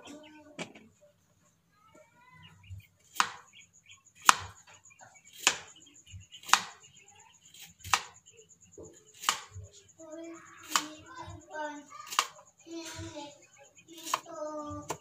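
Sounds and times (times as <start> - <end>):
knife chopping carrots on board: 3.1 - 3.4, 4.2 - 4.6, 5.3 - 5.8, 6.4 - 6.8, 7.5 - 8.2, 9.2 - 9.6, 10.6 - 11.0, 12.1 - 12.4, 14.0 - 15.0.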